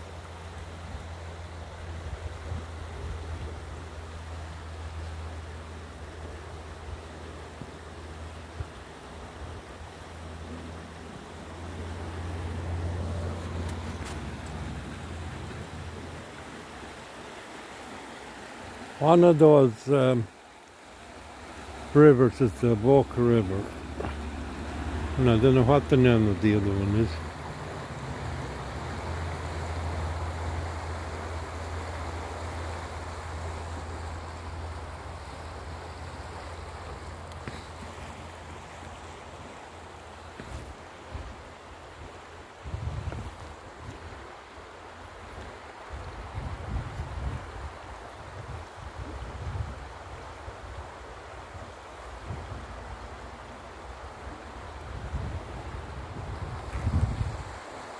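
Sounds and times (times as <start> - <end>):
river rushing over stones: 0.0 - 57.9
wind rumble on microphone: 1.8 - 4.5, 40.1 - 57.7.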